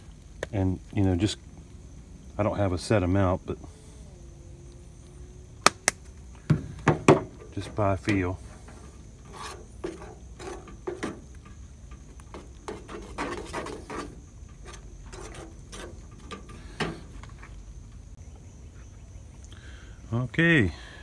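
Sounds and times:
metal spoon scraping pot: 0:08.4 - 0:11.4, 0:12.3 - 0:17.0.

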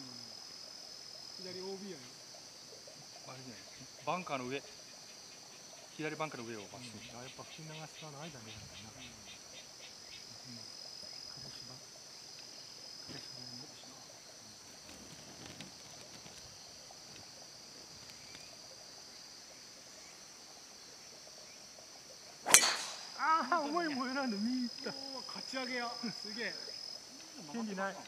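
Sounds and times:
high-pitched insect chorus: 0:00.0 - 0:28.0
golf driver striking ball: 0:22.5 - 0:23.2.

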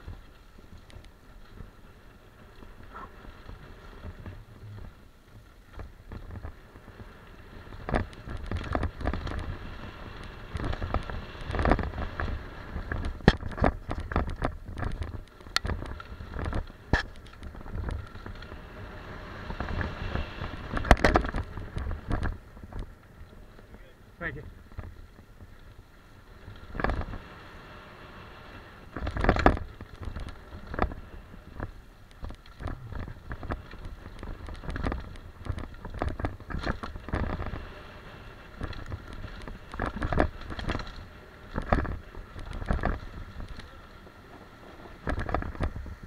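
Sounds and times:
bike tyres crunching over dirt: 0:00.0 - 0:46.0
wind rumbling on microphone: 0:00.0 - 0:46.0
bike clacking and rattling: 0:05.6 - 0:18.6, 0:28.9 - 0:46.0.

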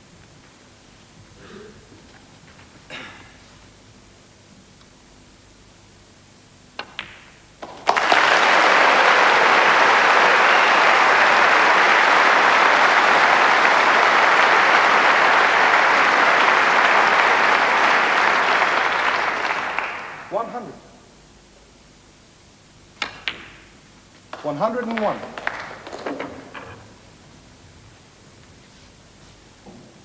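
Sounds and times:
cue striking ball: 0:06.8 - 0:08.2, 0:23.0 - 0:23.7
snooker balls clicking: 0:06.8 - 0:08.2, 0:23.0 - 0:23.7, 0:24.3 - 0:26.9
crowd applauding: 0:07.6 - 0:20.4, 0:24.4 - 0:26.5.

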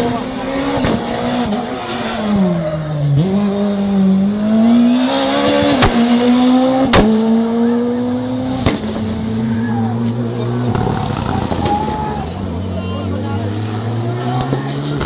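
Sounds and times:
rally car engine at high revs: 0:00.0 - 0:11.8, 0:12.4 - 0:15.0.

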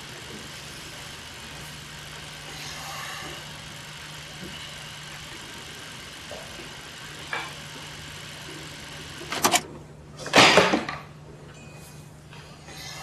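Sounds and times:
steady low hum: 0:00.0 - 0:10.3.

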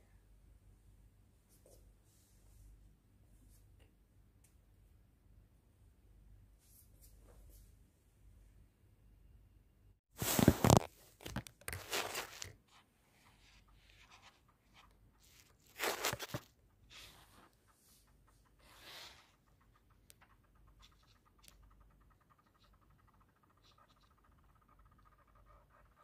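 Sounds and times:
thin fabric rustling: 0:10.1 - 0:12.8, 0:15.2 - 0:17.6.

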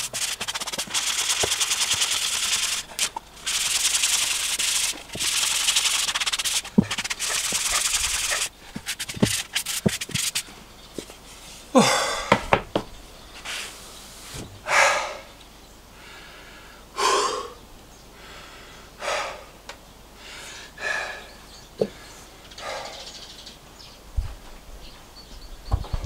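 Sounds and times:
man breathing heavily: 0:11.3 - 0:12.6, 0:14.6 - 0:23.2
man sighing: 0:11.7 - 0:12.5.

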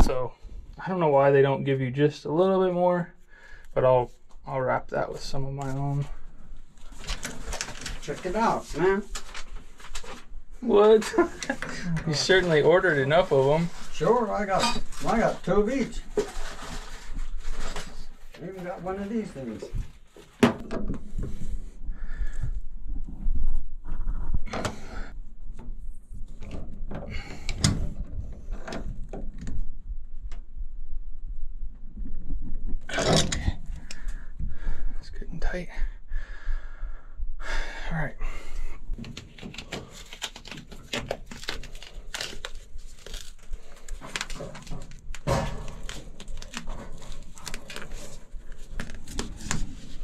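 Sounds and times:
foam tape crinkling: 0:06.8 - 0:10.2, 0:39.1 - 0:50.0.

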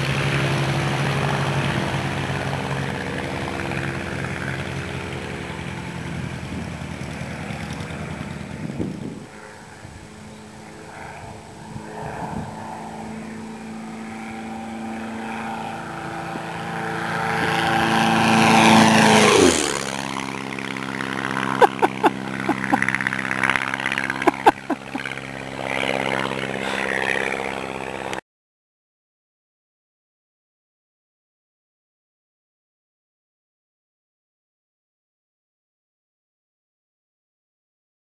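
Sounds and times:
propeller airplane fly-by: 0:00.0 - 0:28.2.

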